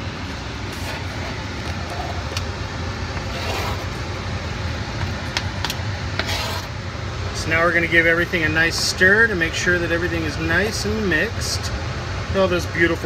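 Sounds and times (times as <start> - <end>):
scrape on cutting board: 0.7 - 1.4, 3.3 - 3.9, 6.2 - 6.7.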